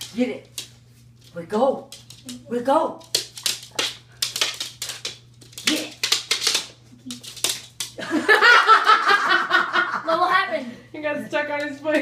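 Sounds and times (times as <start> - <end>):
person laughing: 8.0 - 10.2.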